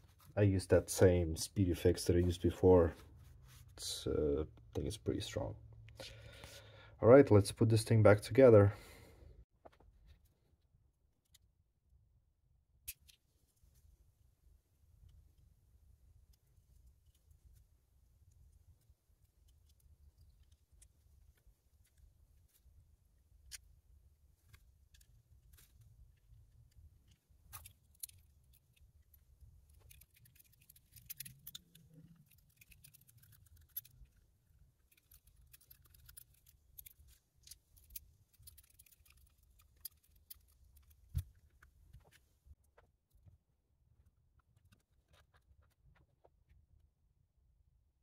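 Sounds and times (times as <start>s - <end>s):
small plastic pieces clicking: 24.5s - 41.6s.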